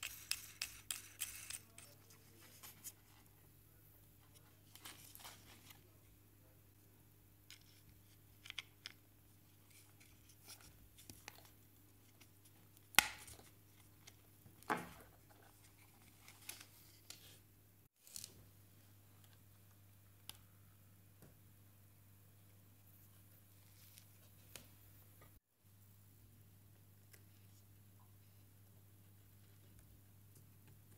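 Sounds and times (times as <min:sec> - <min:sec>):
faint steady hum: 0:00.0 - 0:30.9.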